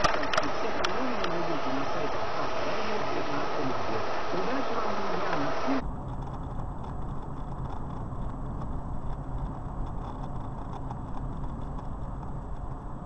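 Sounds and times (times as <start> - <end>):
voice: 0.0 - 5.8
car road and engine rumble: 0.0 - 13.0.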